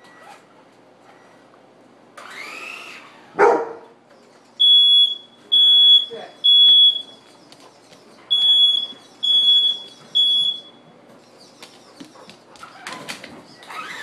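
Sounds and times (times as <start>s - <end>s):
smoke alarm beeps: 4.6s - 7.3s, 8.3s - 10.8s.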